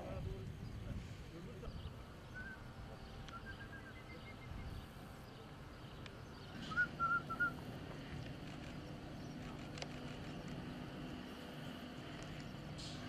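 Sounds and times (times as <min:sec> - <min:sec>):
low outdoor background hum: 0:00.0 - 0:13.0
bird chirping: 0:01.7 - 0:07.6.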